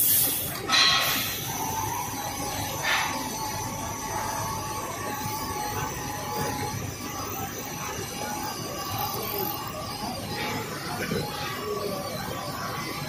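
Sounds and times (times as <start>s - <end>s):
drilling machinery running: 0.0s - 13.0s
roller conveyor running: 0.0s - 13.0s.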